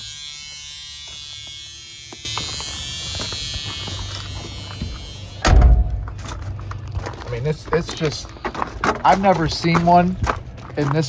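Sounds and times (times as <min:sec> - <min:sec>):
steady low buzz: 0:00.0 - 0:11.0
car door shutting: 0:05.4 - 0:06.3.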